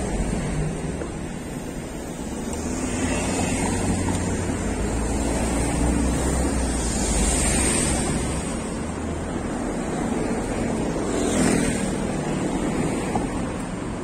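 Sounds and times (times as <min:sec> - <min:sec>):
minivan passing close: 0:00.0 - 0:14.0
road traffic hiss and rumble: 0:00.0 - 0:14.0.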